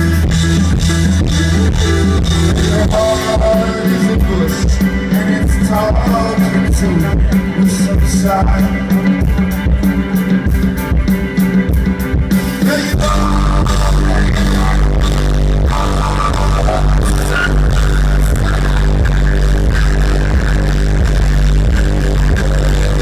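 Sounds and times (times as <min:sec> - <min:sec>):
heavy sustained bass: 0:00.0 - 0:11.6, 0:12.7 - 0:23.0
rock band playing live: 0:00.0 - 0:23.0
person singing: 0:01.3 - 0:10.5, 0:12.4 - 0:20.8.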